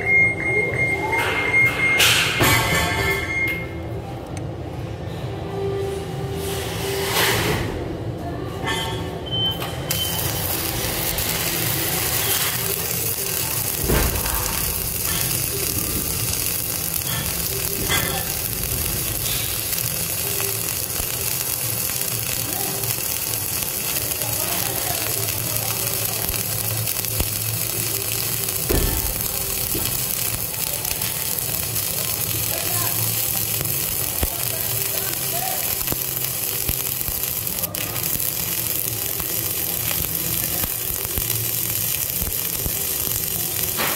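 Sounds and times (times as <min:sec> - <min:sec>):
welding arc crackling: 0:09.6 - 0:43.9.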